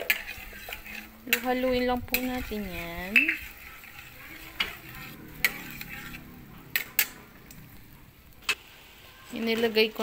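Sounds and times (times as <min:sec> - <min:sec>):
butter sizzling: 0:00.0 - 0:10.0
metal spatula clicking on wok: 0:05.4 - 0:07.6.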